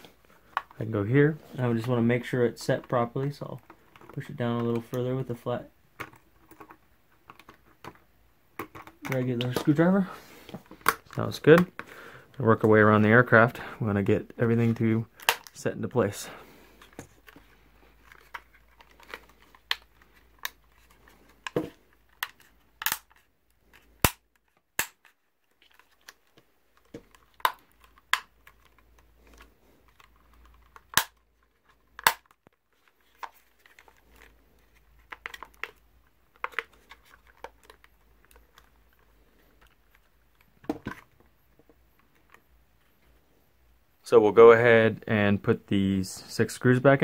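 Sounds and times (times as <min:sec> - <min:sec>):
handling rustle: 0:15.9 - 0:43.4
plastic clicks and snaps: 0:26.8 - 0:31.2, 0:31.9 - 0:32.6.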